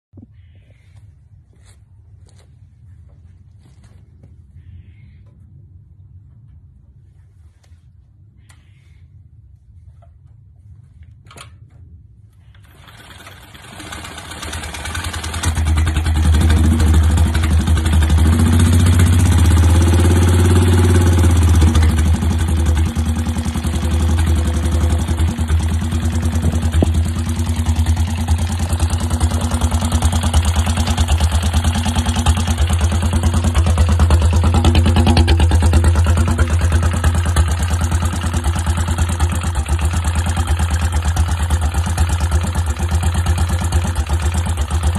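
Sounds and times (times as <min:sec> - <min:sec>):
motorbike engine running: 0:12.6 - 0:44.9.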